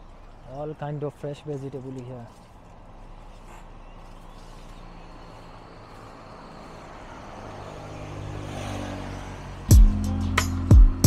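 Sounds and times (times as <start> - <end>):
vehicle engine running: 2.2 - 8.4.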